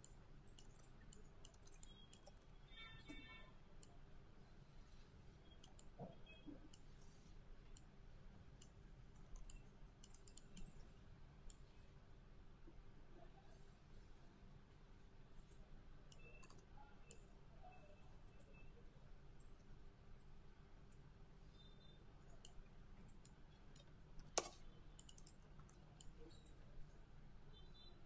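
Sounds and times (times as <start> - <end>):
faint computer mouse clicks: 5.6 - 7.9, 8.6 - 10.9, 22.4 - 26.6.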